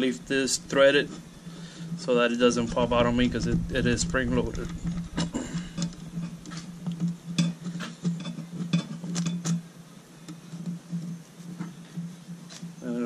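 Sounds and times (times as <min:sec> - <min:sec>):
steady pulsing low hum: 0:00.0 - 0:08.8.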